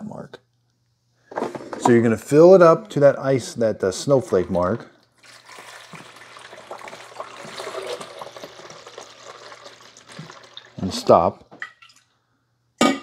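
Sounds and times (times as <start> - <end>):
water pouring into reservoir: 4.1 - 12.1.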